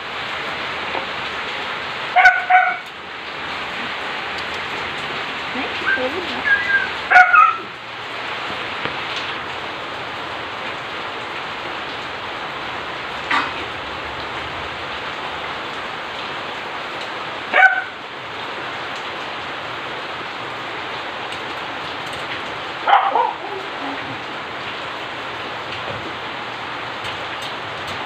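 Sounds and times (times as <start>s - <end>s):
steady rain hiss: 0.0s - 28.0s
dog barking: 2.2s - 2.9s, 6.6s - 7.7s, 17.5s - 18.0s, 22.8s - 24.1s.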